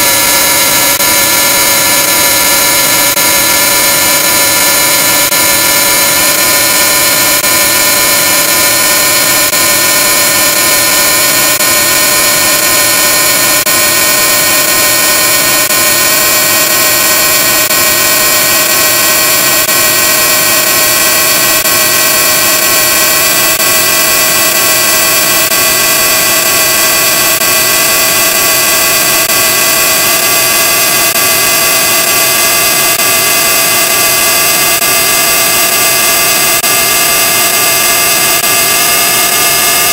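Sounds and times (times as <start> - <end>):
rising electronic tones: 0.0 - 39.9.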